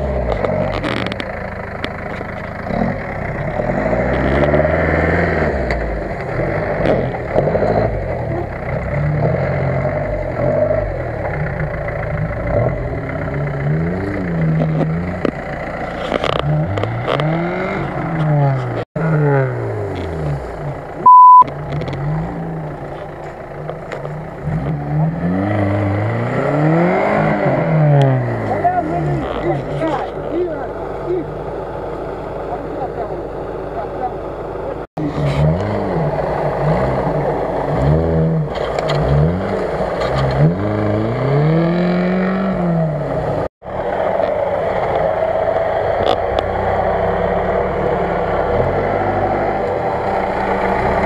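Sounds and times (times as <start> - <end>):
off-road engines revving: 0.0 - 51.0
loud steady beep: 21.0 - 21.5.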